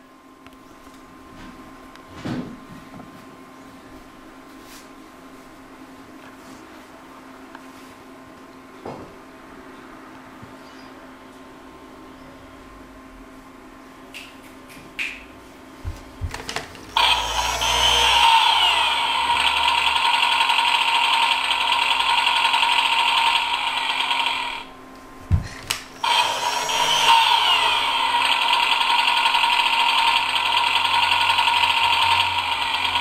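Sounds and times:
toy leaf blower running: 0:16.9 - 0:24.7, 0:26.0 - 0:33.0.

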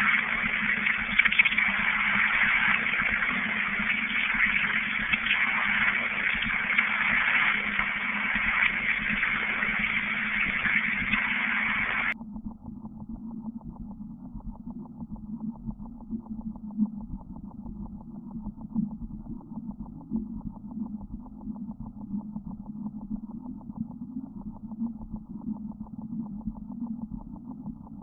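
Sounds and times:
radio static hissing: 0:00.0 - 0:12.2
low hum: 0:00.0 - 0:28.0.

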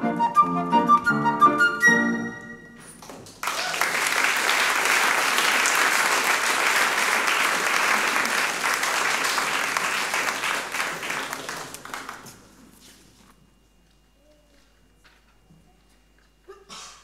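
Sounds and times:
audience applause: 0:03.2 - 0:12.6.

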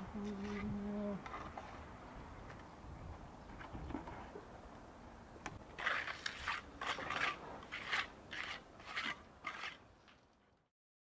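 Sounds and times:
trowel scraping mortar on stone: 0:00.2 - 0:01.8, 0:05.8 - 0:09.9.

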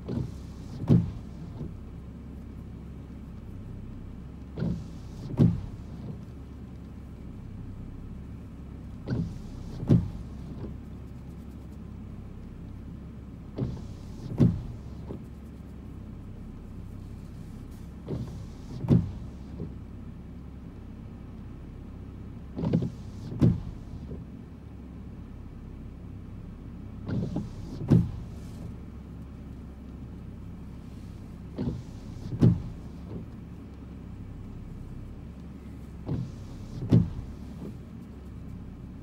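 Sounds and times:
wiper thunk: 0:00.0 - 0:01.8, 0:04.4 - 0:07.3, 0:08.9 - 0:11.6, 0:13.5 - 0:16.0, 0:16.7 - 0:19.9, 0:22.5 - 0:24.3, 0:27.0 - 0:39.0
low car hum: 0:00.0 - 0:39.0
windshield wipers sweeping: 0:00.0 - 0:39.0.

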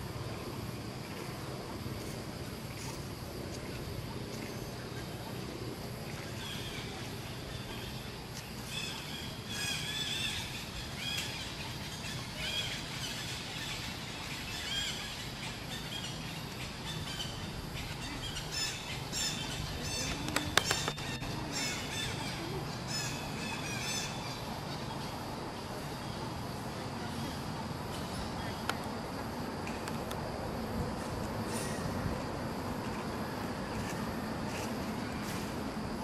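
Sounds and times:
low outdoor background: 0:00.0 - 0:36.0
birds chirping: 0:06.3 - 0:26.2
sharp clicks: 0:20.1 - 0:21.2.

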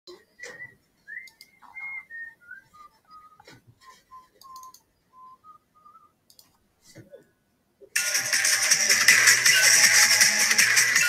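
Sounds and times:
sharp clicks: 0:04.4 - 0:04.8, 0:06.3 - 0:06.5.

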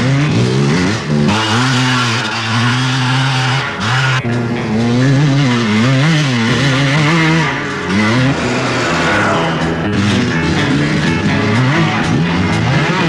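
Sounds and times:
motorcycle engine revving: 0:00.0 - 0:13.0.

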